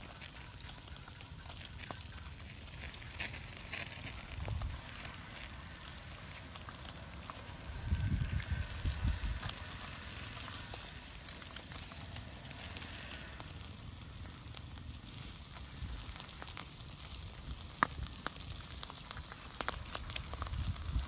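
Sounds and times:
campfire crackling: 0.0s - 21.0s
fish sizzling over flames: 0.0s - 21.0s
low rumble: 3.6s - 16.0s.

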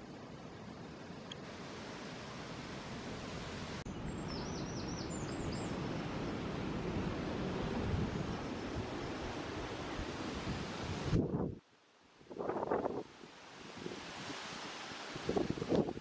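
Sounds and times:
songbird singing: 3.8s - 6.5s
wind noise on microphone: 6.4s - 11.6s, 12.2s - 16.0s.

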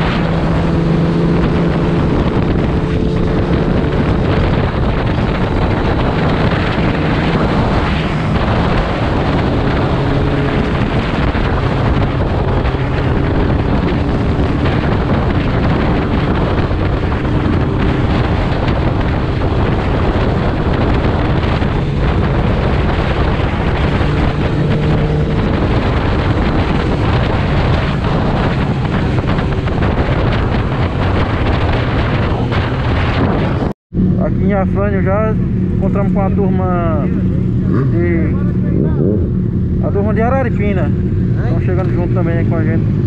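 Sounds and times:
motorcycle engine cruising: 0.0s - 43.0s
wind buffeting microphone: 0.0s - 43.0s.

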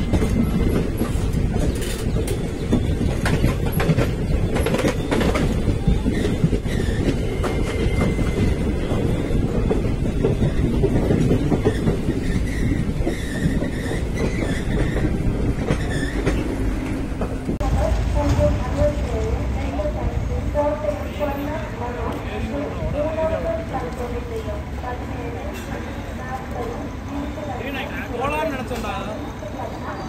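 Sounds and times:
wheel clatter over rail joints: 0.0s - 19.4s
train rumbling past: 0.0s - 30.0s.

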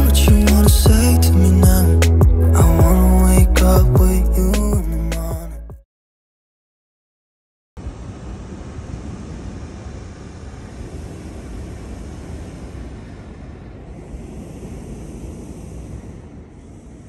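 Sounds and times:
wind buffeting microphone: 8.0s - 17.0s.

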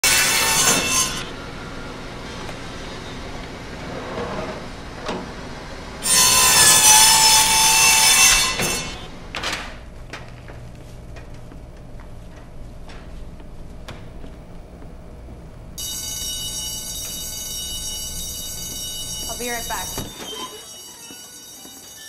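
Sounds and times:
band saw cutting through meat: 0.0s - 1.3s, 6.0s - 9.0s.

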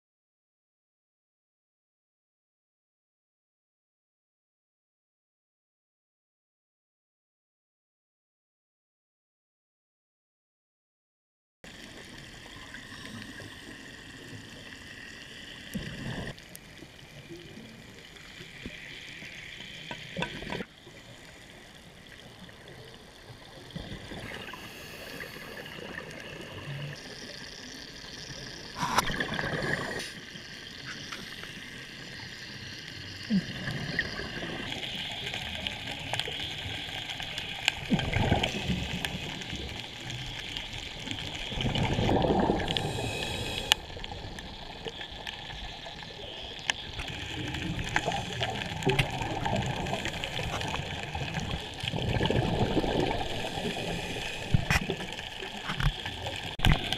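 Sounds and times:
gurgling bubbles: 11.7s - 56.9s
steady underwater hiss: 11.7s - 56.9s.

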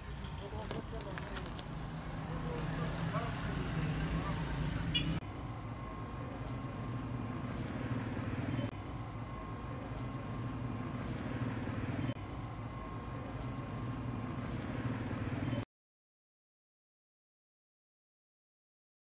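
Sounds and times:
low mechanical engine hum: 1.8s - 15.6s.

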